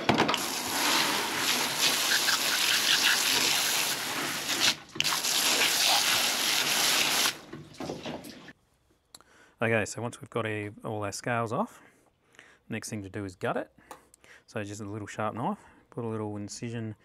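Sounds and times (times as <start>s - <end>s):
hose water spraying on steel: 0.3s - 8.4s.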